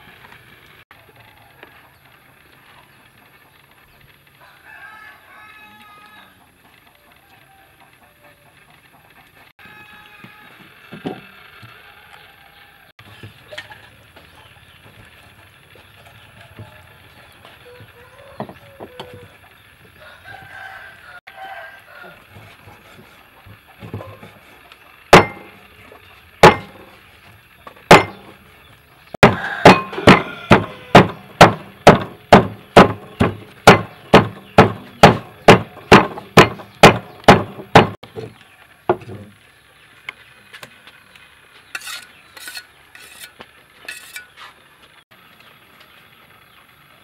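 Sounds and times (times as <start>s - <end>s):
cleaver chopping on wooden board: 25.1s - 25.6s, 26.4s - 26.8s, 27.9s - 28.3s, 29.2s - 38.0s.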